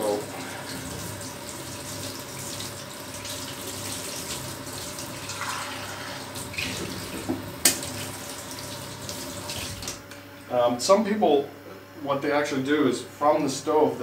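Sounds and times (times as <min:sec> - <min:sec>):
tap water splashing into steel sink: 0:06.5 - 0:08.1.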